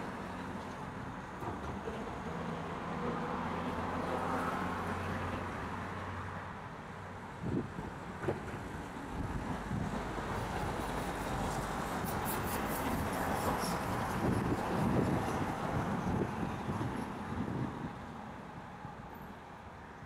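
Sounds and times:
rumbling traffic: 0.0 - 20.0.

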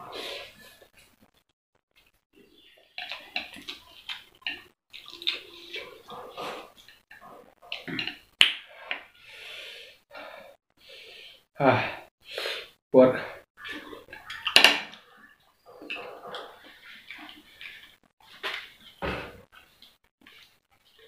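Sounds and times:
noodles slurped and chewed: 2.3 - 9.9, 13.6 - 18.8.

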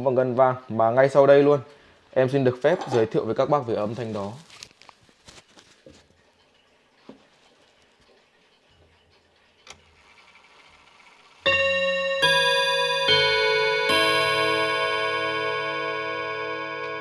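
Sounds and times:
clock chime rods ringing: 11.4 - 17.0.

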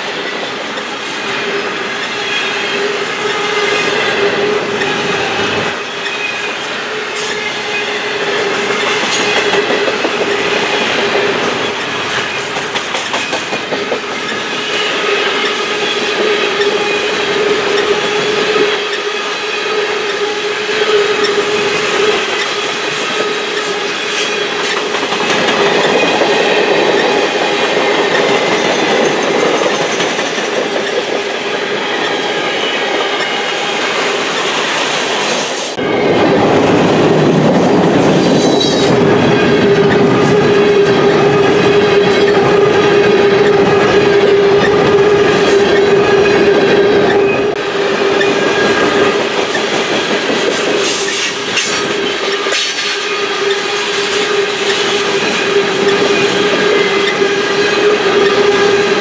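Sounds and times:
steel wheels on rails: 0.0 - 59.0
deep train rumble: 19.8 - 59.0.

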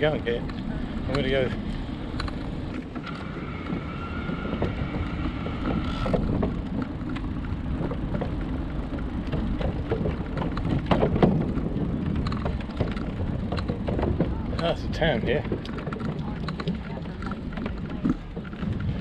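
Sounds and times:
bicycle tyre noise: 0.0 - 19.0
wind rumbling on camera: 0.0 - 19.0
tyre knocking over wooden planks: 9.3 - 14.5.

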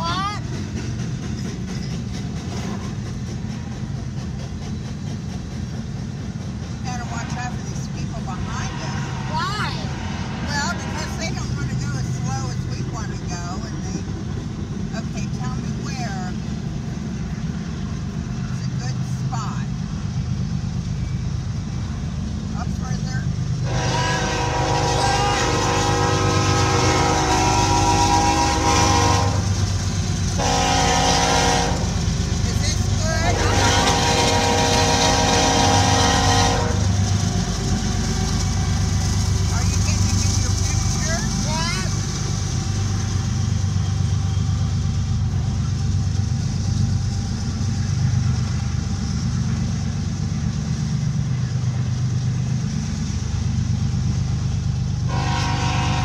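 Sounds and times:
low road and engine rumble: 0.0 - 56.0
locomotive air horn blast: 8.4 - 11.3, 23.6 - 29.6, 30.4 - 32.0, 33.2 - 37.0, 55.1 - 56.0.

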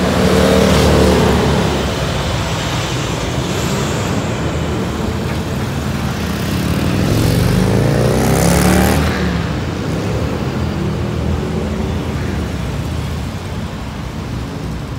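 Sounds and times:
traffic passing: 0.0 - 14.9.

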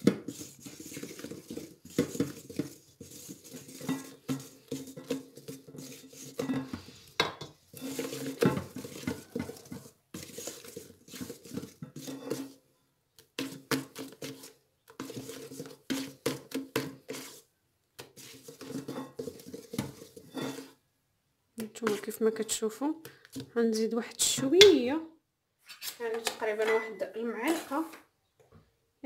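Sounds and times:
whisk beating in metal bowl: 0.0 - 12.6, 13.4 - 17.4, 18.0 - 20.7.

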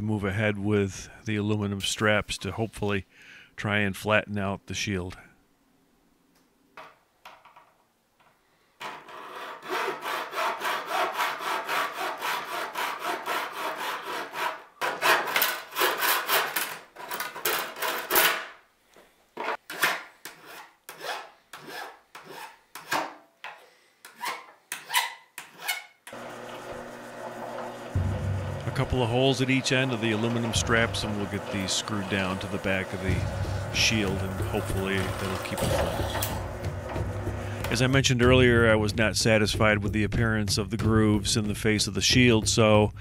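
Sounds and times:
hand file on metal: 8.8 - 18.1, 20.2 - 23.0
hacksaw cutting metal: 8.8 - 18.5, 19.5 - 23.2, 27.9 - 37.8.

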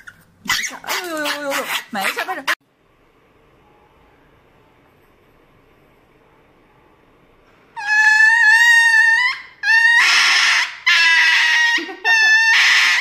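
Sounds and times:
small dog screaming: 7.8 - 13.0.

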